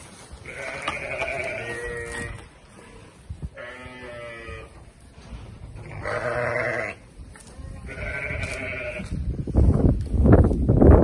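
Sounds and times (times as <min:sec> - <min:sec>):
sheep bleating: 0:00.4 - 0:02.5, 0:03.6 - 0:04.7, 0:05.8 - 0:07.0, 0:07.8 - 0:09.1.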